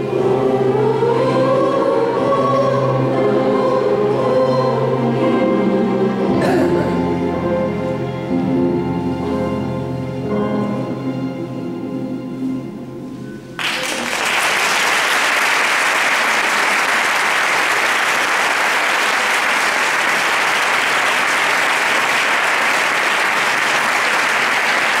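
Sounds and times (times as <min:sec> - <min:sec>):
choir and orchestra chord: 0:00.0 - 0:12.8
audience applause: 0:13.6 - 0:25.0.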